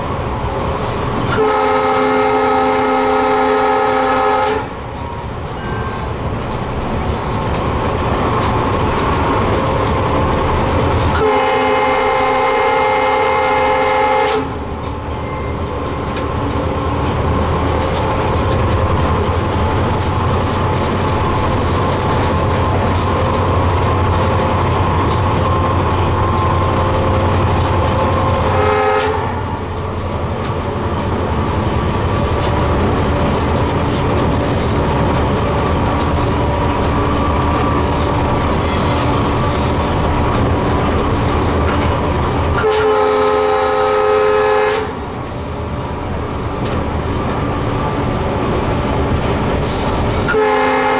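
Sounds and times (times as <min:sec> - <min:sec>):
locomotive engine and wheels rumbling: 0:00.0 - 0:50.9
locomotive horn blast: 0:01.3 - 0:04.8, 0:11.1 - 0:14.6, 0:28.5 - 0:29.7, 0:42.6 - 0:45.0, 0:50.2 - 0:50.9.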